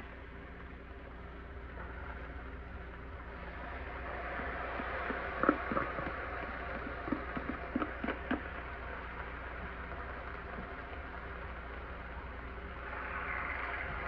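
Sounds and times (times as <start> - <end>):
taps and knocks: 5.1 - 8.5.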